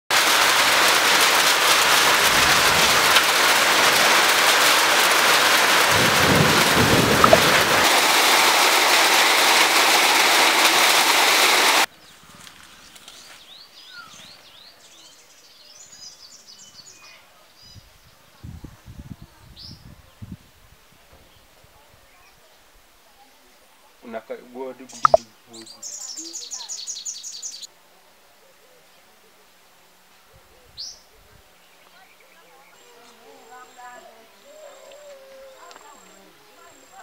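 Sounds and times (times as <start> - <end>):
heavy rain hiss: 0.1 - 11.9
birds chirping: 7.2 - 7.5, 24.9 - 27.7.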